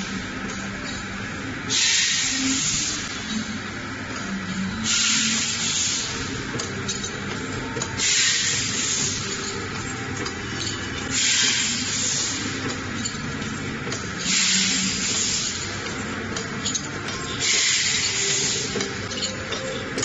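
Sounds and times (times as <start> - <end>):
packing machine high hiss: 1.7 - 3.1, 4.8 - 6.4, 8.0 - 9.4, 11.1 - 12.6, 14.1 - 15.7, 17.4 - 18.8.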